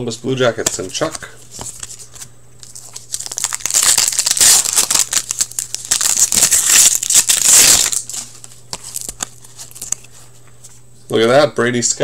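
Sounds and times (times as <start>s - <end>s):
foil wrapper tearing and crinkling: 0.7s - 10.1s.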